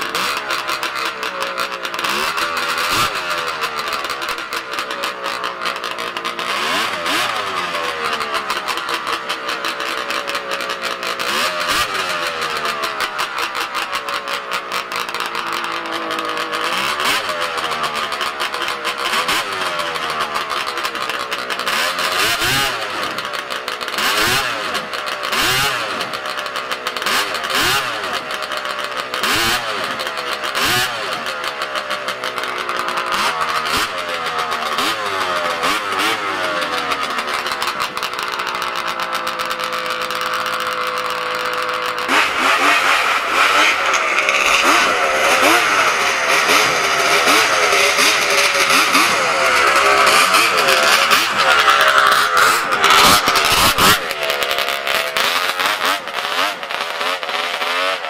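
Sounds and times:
snowmobile engine revving: 0.0s - 58.0s.

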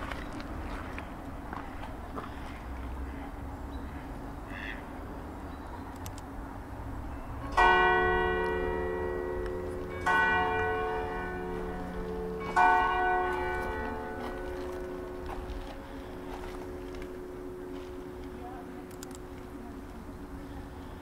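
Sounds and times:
church bell striking: 7.0s - 21.0s.

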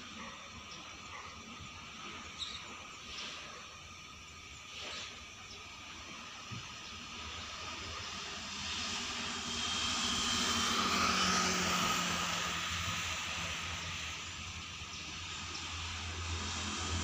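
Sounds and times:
distant engine drone: 0.0s - 17.0s.

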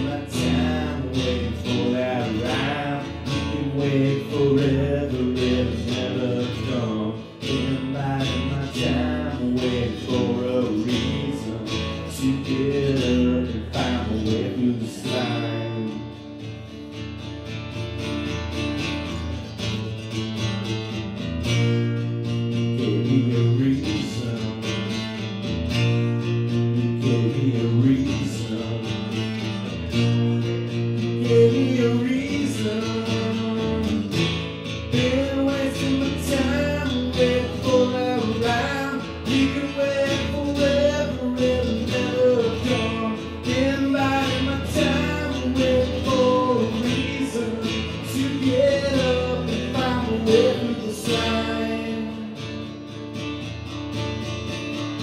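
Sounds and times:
man singing: 0.0s - 16.6s, 22.0s - 25.3s, 26.0s - 52.9s
acoustic guitar strumming: 0.0s - 55.0s.

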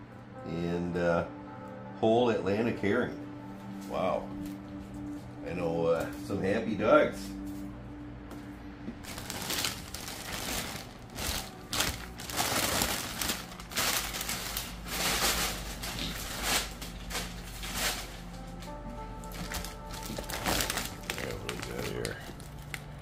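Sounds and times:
plastic bag crinkling: 9.0s - 23.0s.

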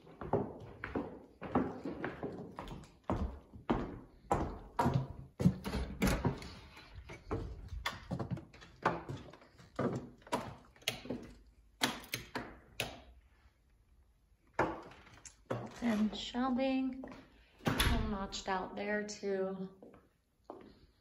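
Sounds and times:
footsteps walking: 0.0s - 11.5s, 17.0s - 17.4s.

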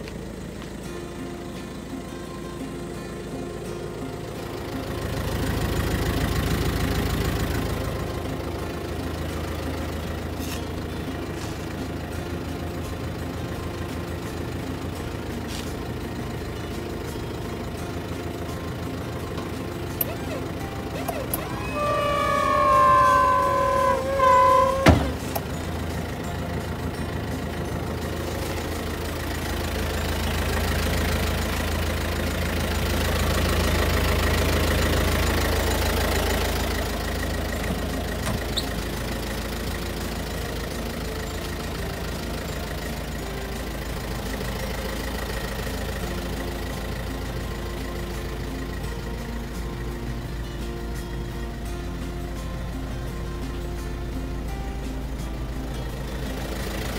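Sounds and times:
truck engine idling: 0.0s - 56.9s
high wavering tone: 16.4s - 32.6s.

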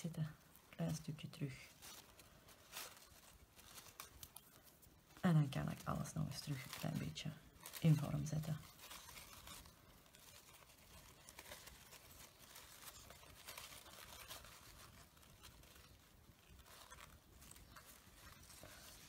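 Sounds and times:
fabric rustling: 0.0s - 19.0s.

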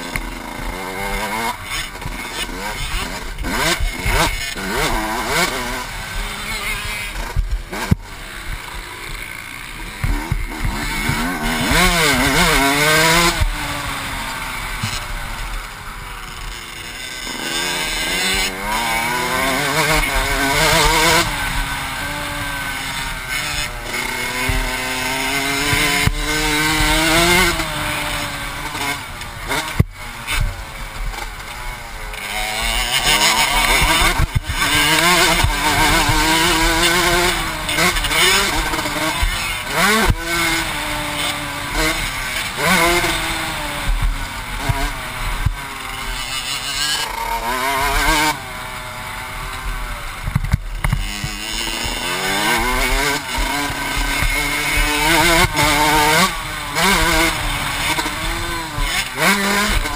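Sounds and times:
motocross bike engine revving: 0.0s - 59.9s.

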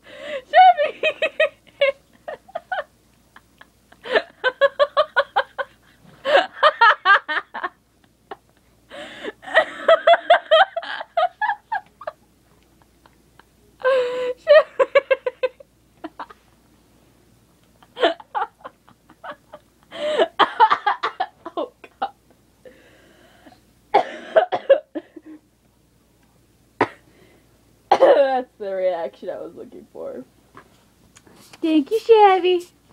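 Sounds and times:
person laughing: 0.5s - 7.7s, 17.8s - 22.1s
person coughing: 23.9s - 25.1s, 26.8s - 27.0s, 27.9s - 28.3s.

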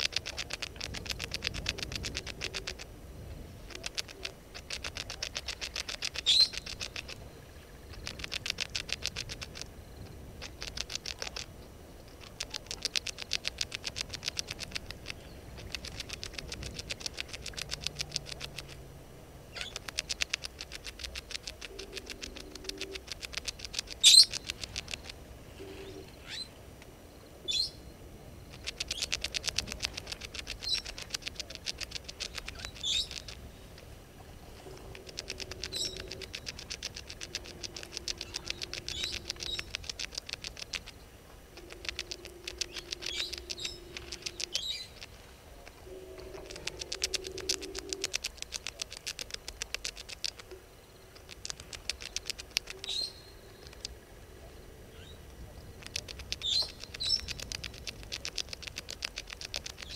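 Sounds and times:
rapid clicking trills: 0.0s - 2.9s, 3.6s - 18.8s, 19.5s - 25.2s, 28.5s - 33.9s, 34.5s - 54.0s, 55.2s - 59.9s
low steady hum: 0.0s - 59.9s.

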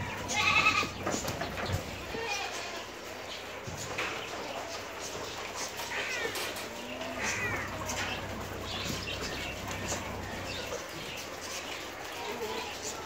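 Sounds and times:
goats bleating: 0.0s - 1.3s, 1.9s - 3.1s, 5.9s - 10.6s.

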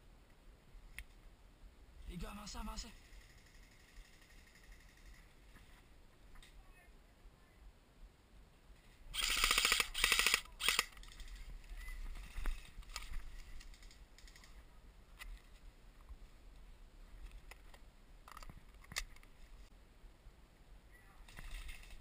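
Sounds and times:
airsoft rifle firing bursts: 9.2s - 10.9s.

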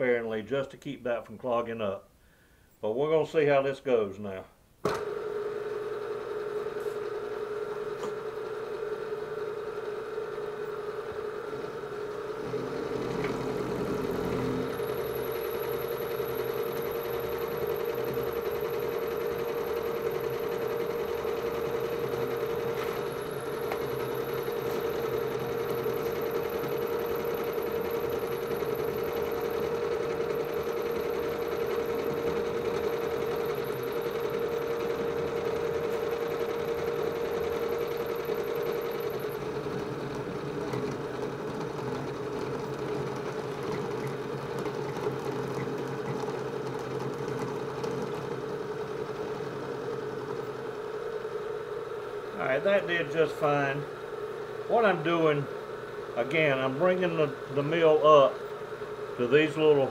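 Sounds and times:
milling machine humming: 5.0s - 59.9s
end mill cutting aluminium: 12.4s - 30.2s.

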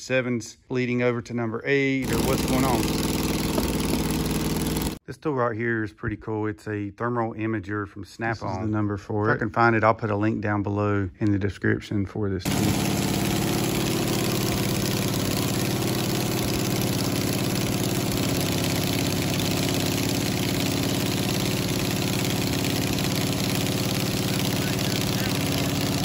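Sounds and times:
engine idling: 2.0s - 5.0s, 12.5s - 26.0s.

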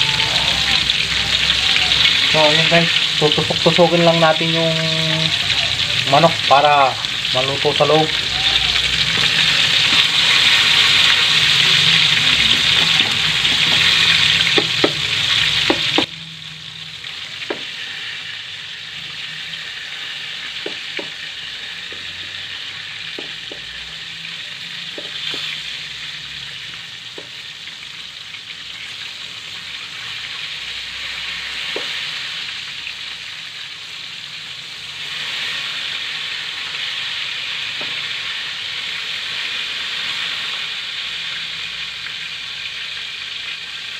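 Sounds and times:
chicken deep-frying in oil: 0.0s - 43.9s.

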